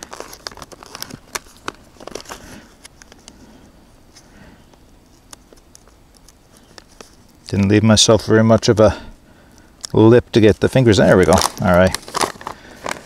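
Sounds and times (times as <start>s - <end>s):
foil pouch crinkling: 0.0s - 3.5s, 5.0s - 7.8s, 9.8s - 13.0s.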